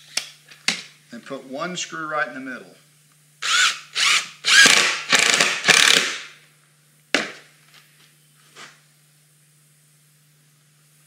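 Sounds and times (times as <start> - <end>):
cordless drill driving a screw: 3.4 - 6.2.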